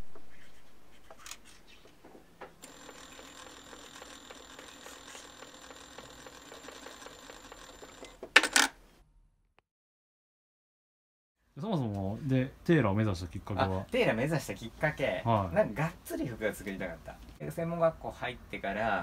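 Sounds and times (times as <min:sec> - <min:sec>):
sewing machine running: 0:02.6 - 0:08.2.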